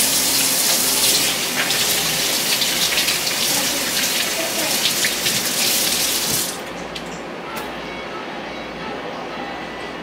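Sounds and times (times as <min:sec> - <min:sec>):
tap running: 0:00.0 - 0:07.2.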